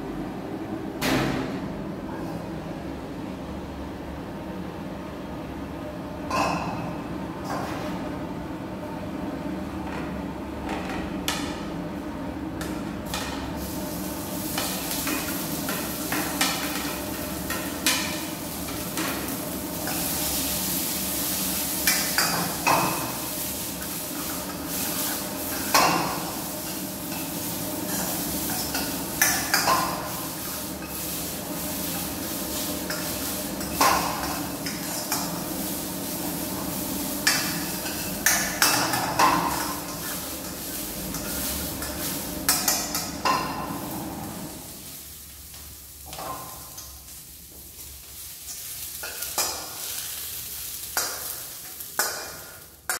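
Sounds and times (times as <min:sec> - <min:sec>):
steady background hum: 0:00.0 - 0:52.9
food sizzling: 0:13.5 - 0:52.9
ladle clanking and scraping wok: 0:14.4 - 0:44.3, 0:48.1 - 0:52.5.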